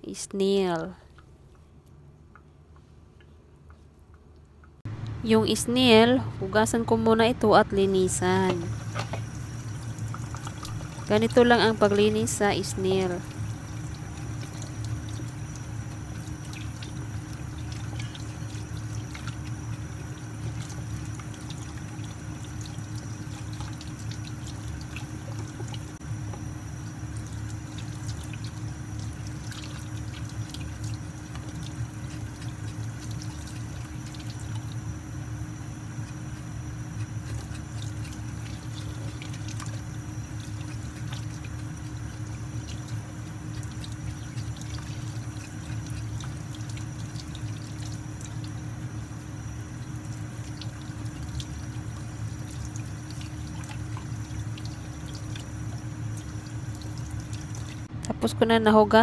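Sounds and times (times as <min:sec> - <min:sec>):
tap water running into sink: 0:08.4 - 0:34.9, 0:35.9 - 0:48.7, 0:49.6 - 0:57.9.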